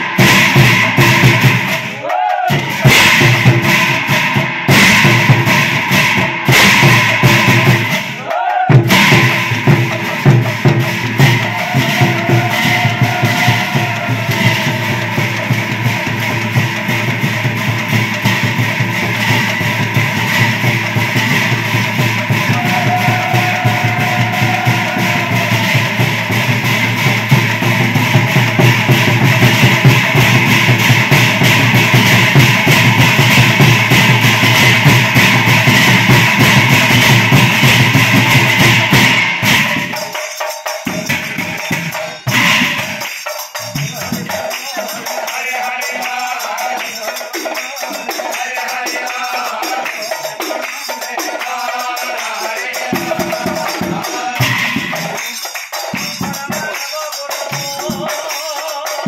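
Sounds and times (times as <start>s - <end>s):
drums: 0.0s - 59.0s
hand cymbals clashing: 0.0s - 59.0s
voice chanting: 22.3s - 26.4s.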